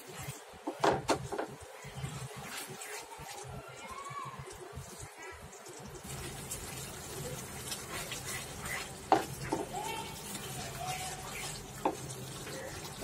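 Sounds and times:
spatula scraping a pan: 0.0s - 3.5s, 7.5s - 12.6s
soft sizzle: 0.0s - 13.0s.

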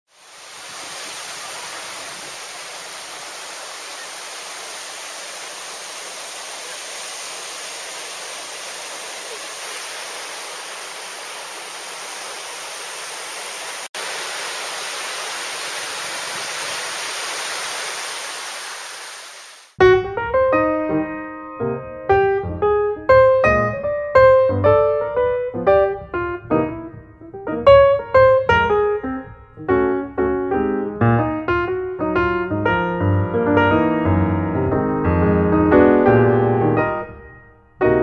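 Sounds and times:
waves breaking on shore: 0.1s - 19.8s.

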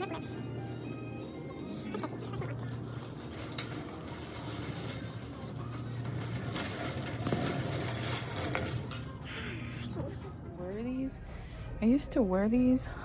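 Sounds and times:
shopping cart rattling: 1.6s - 9.4s.

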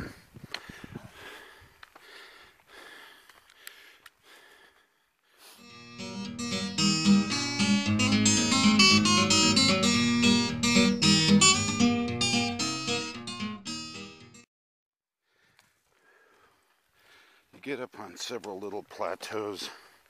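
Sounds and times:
strummed acoustic guitar: 5.6s - 14.3s.

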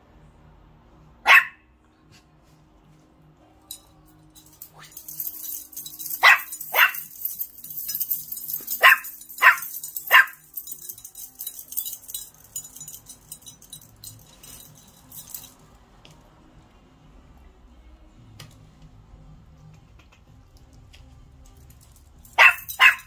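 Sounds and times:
puppy barking: 1.2s - 1.6s, 6.1s - 7.3s, 8.6s - 10.5s, 22.4s - 23.0s.

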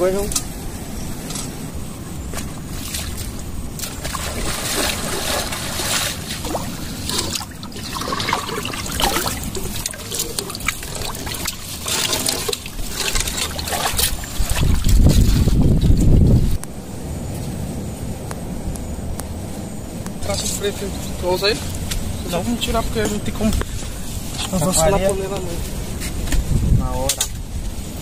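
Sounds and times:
water trickling and splashing: 2.3s - 16.6s.

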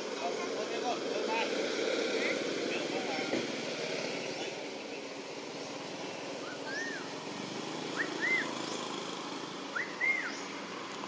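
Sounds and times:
steady background hiss: 0.0s - 11.0s
bird calling: 6.4s - 7.2s, 7.9s - 8.9s, 9.7s - 10.6s.

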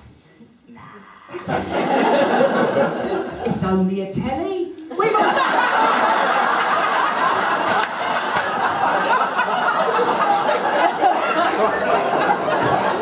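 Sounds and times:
audience laughing: 1.3s - 3.5s, 4.9s - 13.0s.

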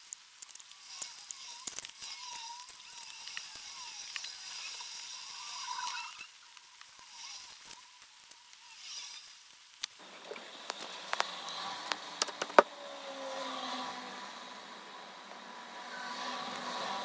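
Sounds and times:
small sharp clicks and taps: 0.0s - 4.4s, 9.2s - 12.7s
faint steady background noise: 0.0s - 17.0s.

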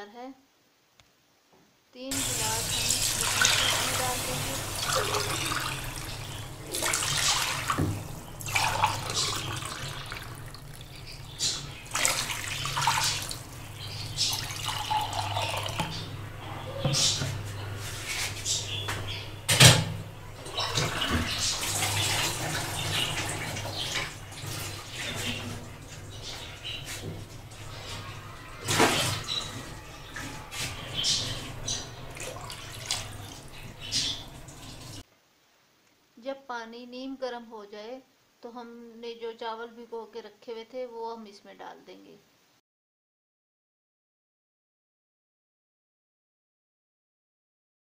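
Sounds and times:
water splashing into a pot: 2.1s - 16.0s, 20.4s - 35.0s
water hissing and bubbling: 2.1s - 16.2s.

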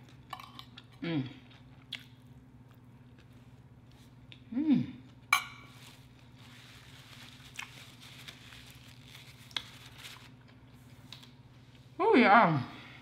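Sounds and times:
person humming: 4.5s - 5.0s
paper napkin crinkling: 5.7s - 10.5s.

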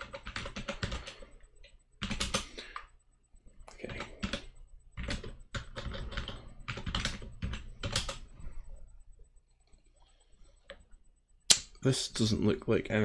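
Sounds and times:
typing on computer keyboard: 0.0s - 2.9s, 3.6s - 8.4s.

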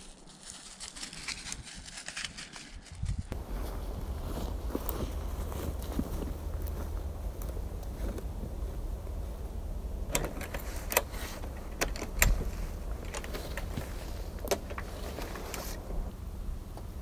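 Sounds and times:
steady low rumble: 2.7s - 17.0s.

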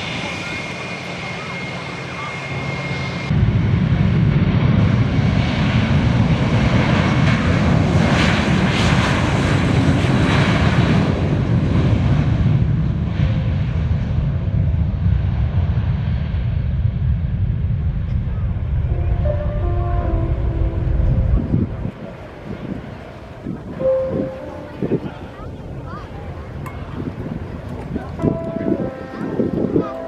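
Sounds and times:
jet engines at takeoff: 0.0s - 29.9s.

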